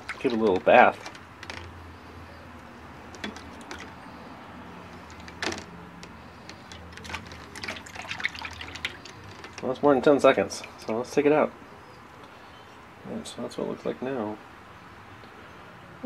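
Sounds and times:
liquid sloshing in a tub: 0.0 - 2.2, 3.0 - 11.2.

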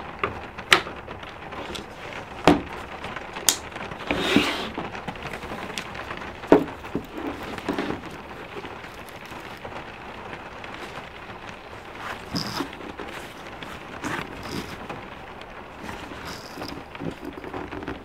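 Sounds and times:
steady rain: 0.0 - 18.0
small bottles clinking: 15.8 - 18.0.

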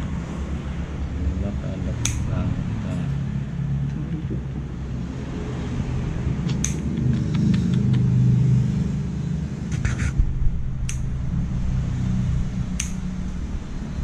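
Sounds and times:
loud low rumble: 0.0 - 14.0
nail clipper clicks: 2.0 - 2.3, 6.5 - 8.0, 10.8 - 11.1, 12.8 - 13.0.

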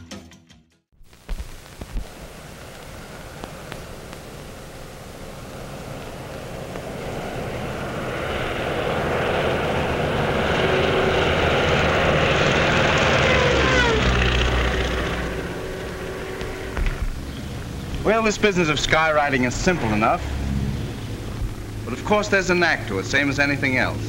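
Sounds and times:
propeller plane flying past: 2.2 - 24.0.

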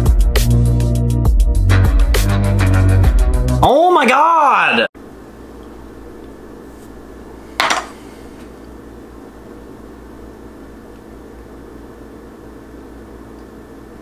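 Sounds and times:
steady low hum: 5.0 - 14.0.

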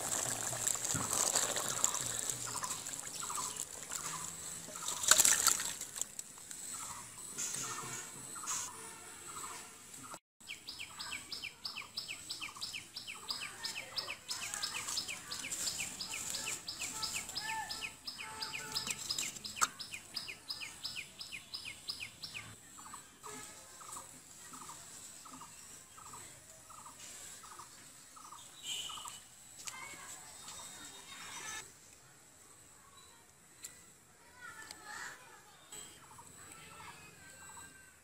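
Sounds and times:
birds chirping: 1.4 - 23.0.

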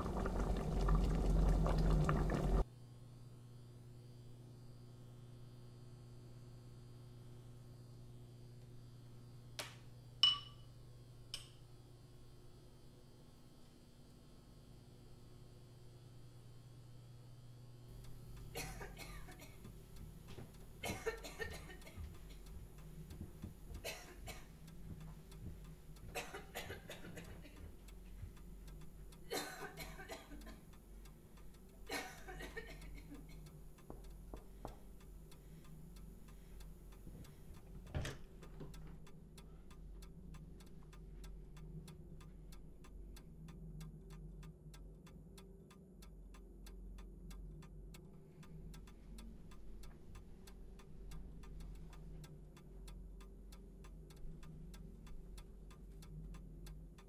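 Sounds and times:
low steady drone: 17.4 - 57.0
clock ticking: 17.9 - 57.0.

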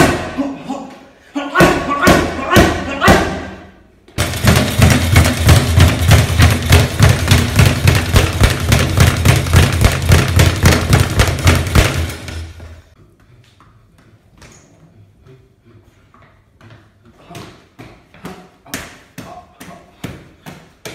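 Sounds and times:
speed bag rattling: 4.2 - 12.6.

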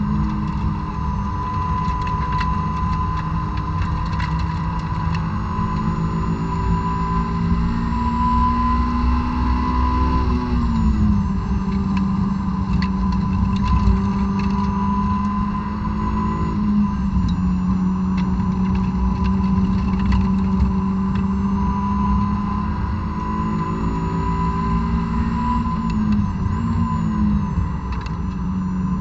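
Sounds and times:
car engine at high revs: 0.0 - 29.0
road noise: 0.0 - 29.0
faint clicks and rattles: 0.2 - 5.9, 11.6 - 15.3, 18.1 - 21.3.

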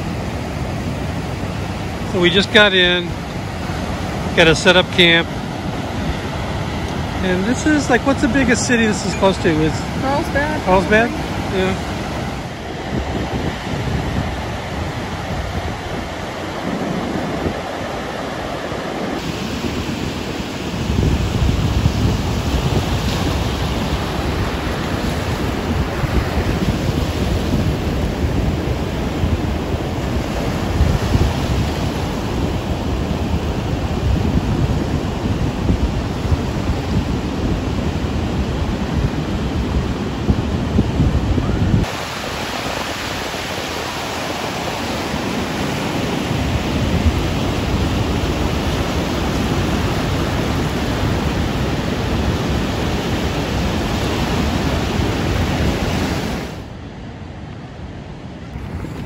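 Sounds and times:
ocean surf washing: 0.0 - 59.0
wind buffeting microphone: 0.0 - 59.0.

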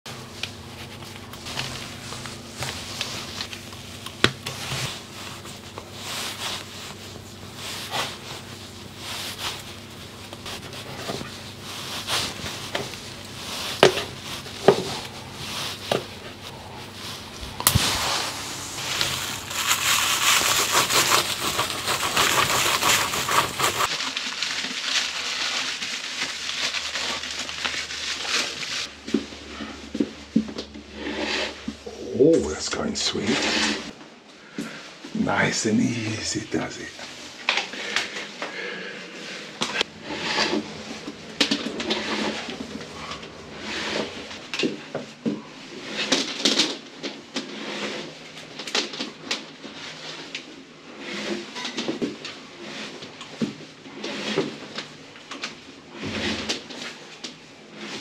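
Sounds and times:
dense scratchy noise: 0.1 - 29.8, 30.9 - 34.0, 39.1 - 44.9.

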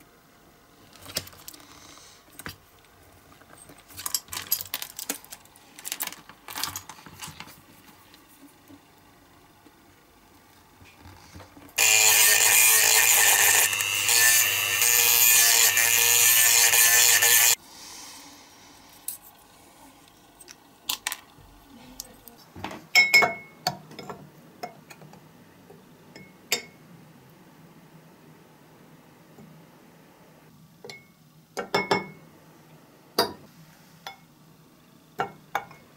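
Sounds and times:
small power tool running: 11.8 - 17.6.

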